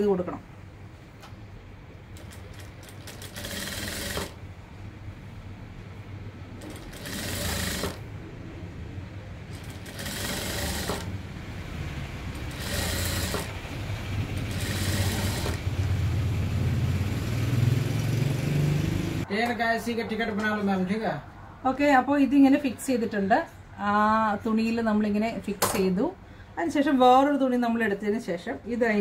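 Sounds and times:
sewing machine stitching: 2.2 - 4.4, 6.6 - 8.0, 9.5 - 11.2, 12.3 - 13.7, 14.3 - 15.7.

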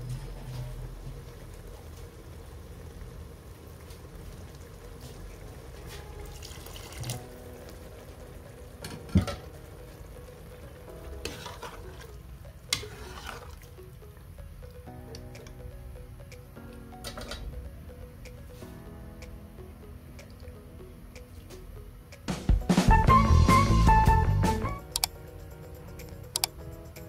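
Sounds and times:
food sizzling in a pan: 0.2 - 13.8.

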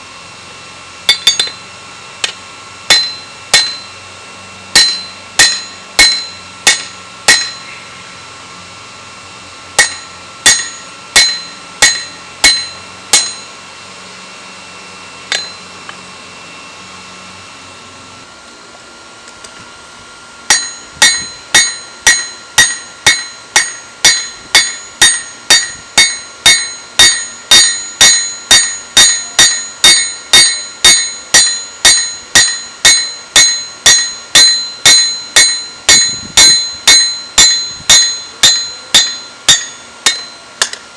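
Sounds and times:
anvil ringing: 1.1 - 1.6, 2.9 - 4.0, 4.7 - 7.7, 9.8 - 13.5, 15.3 - 15.7, 20.5 - 40.8
hammer striking steel on anvil: 1.1 - 1.6, 2.2 - 4.0, 4.7 - 7.7, 9.8 - 13.6, 15.3 - 15.7, 20.5 - 40.8.

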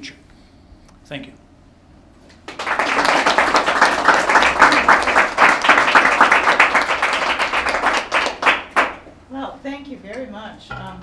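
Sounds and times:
audience applauding: 2.5 - 9.0.

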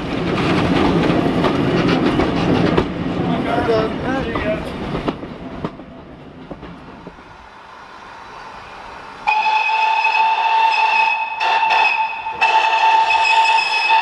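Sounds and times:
train knocks: 0.0 - 7.5, 9.2 - 14.0
train running noise: 0.0 - 14.0
steam locomotive whistle blast: 9.2 - 14.0.

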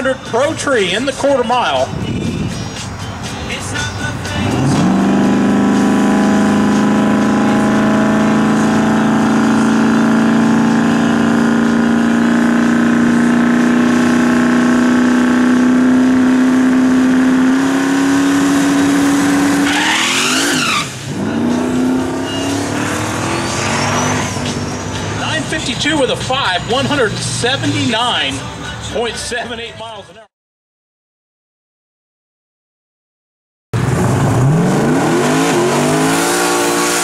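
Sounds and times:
car accelerating away: 4.3 - 25.4, 33.8 - 37.0
race car engine revving: 4.3 - 27.9, 33.8 - 37.0.

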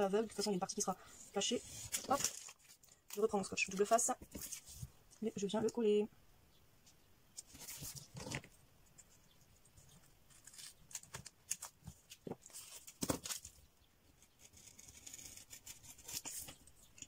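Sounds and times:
paper rustling: 1.4 - 4.9, 7.4 - 8.6, 9.7 - 13.6.

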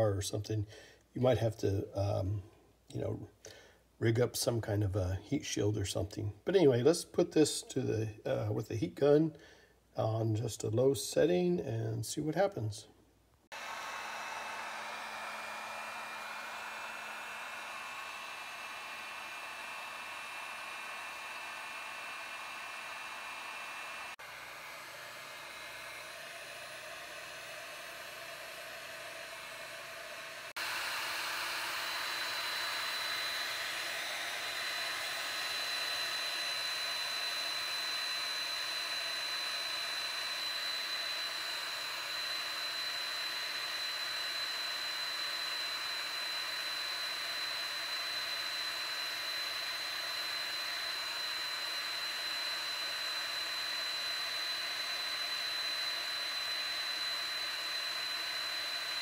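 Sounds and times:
heat gun blowing air: 13.5 - 59.0
thin high whine: 13.7 - 59.0.

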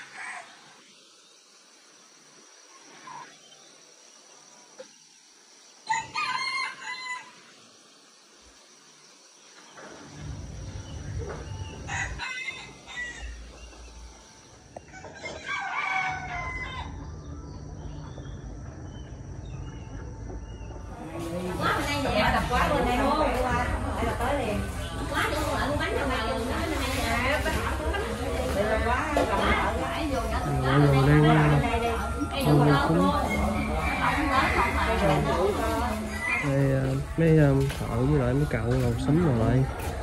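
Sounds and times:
rooster crowing: 5.8 - 7.4, 11.6 - 13.7, 14.8 - 17.7, 29.2 - 37.0
low rumble: 10.1 - 12.2, 16.8 - 26.5.

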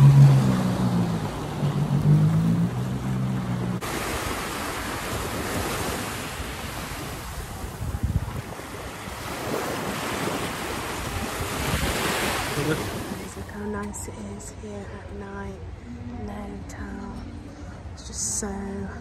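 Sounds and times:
jet ski engine running: 0.0 - 13.8
small waves washing ashore: 0.0 - 13.8
wind buffeting microphone: 3.4 - 13.6.

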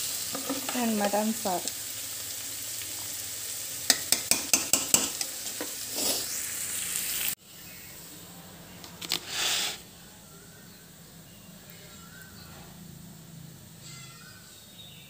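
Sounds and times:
meat sizzling in a pan: 0.0 - 7.9
brief hiss: 9.1 - 9.9.

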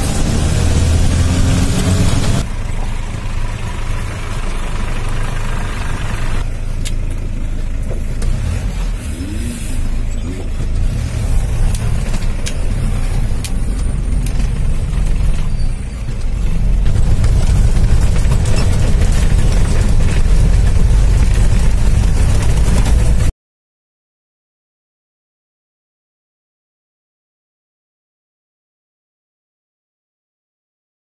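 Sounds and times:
vehicle engine rumble off-road: 0.0 - 23.3.

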